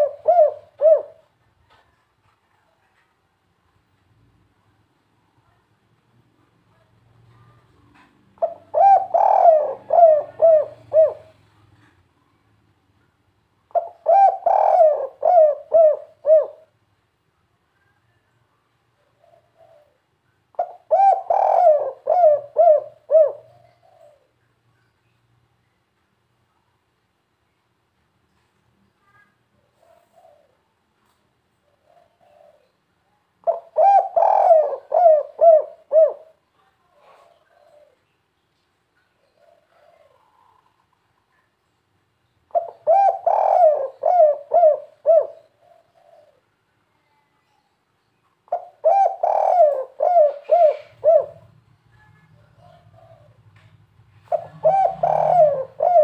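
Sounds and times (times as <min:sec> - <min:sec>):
dove cooing: 0:00.0 - 0:01.8, 0:07.3 - 0:11.9, 0:13.7 - 0:16.8, 0:19.0 - 0:24.4, 0:29.6 - 0:30.7, 0:31.6 - 0:36.4, 0:37.0 - 0:38.0, 0:39.2 - 0:40.8, 0:42.5 - 0:46.5, 0:48.5 - 0:51.6, 0:52.4 - 0:56.0.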